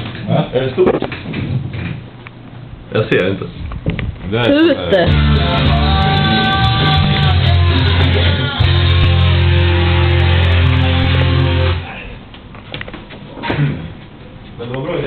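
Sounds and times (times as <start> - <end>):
rock music with electric guitar: 5.1 - 11.8.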